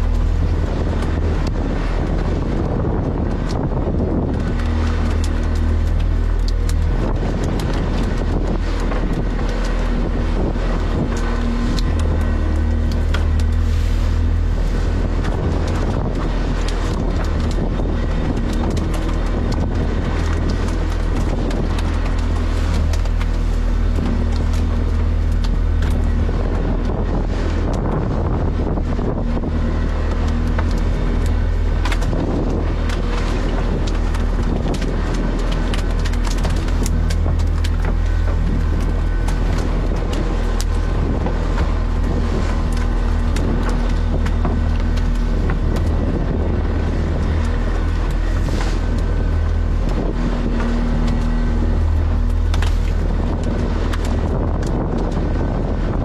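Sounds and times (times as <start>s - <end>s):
boat engine running: 0.0s - 56.0s
wind on microphone: 0.0s - 56.0s
knocks and clicks: 28.6s - 55.4s.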